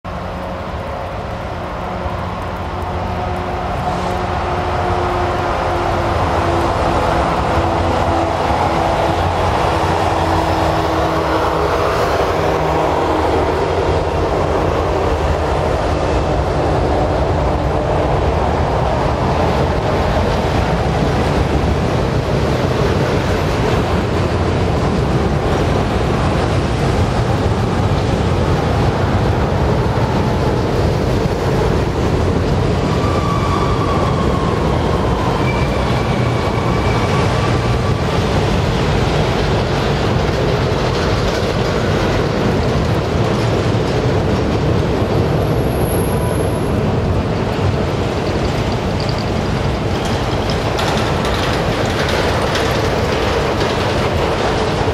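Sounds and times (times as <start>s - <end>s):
train wheels rumbling on rails: 0.0s - 54.9s
faint high squeals: 32.9s - 37.6s.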